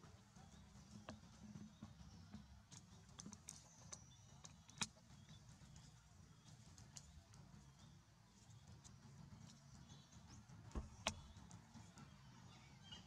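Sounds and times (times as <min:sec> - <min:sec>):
light clicks and ticks: 0:02.7 - 0:12.1.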